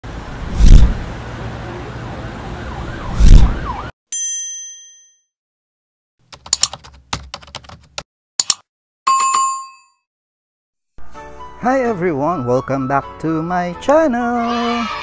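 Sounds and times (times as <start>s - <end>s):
street traffic: 0.0s - 3.9s
mouse clicks: 8.4s - 8.6s.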